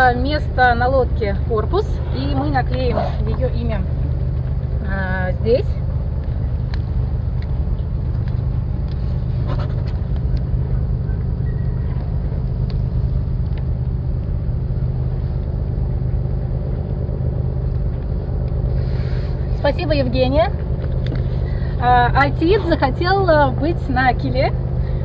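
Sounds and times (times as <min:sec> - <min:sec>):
engine droning: 0:00.0 - 0:25.0.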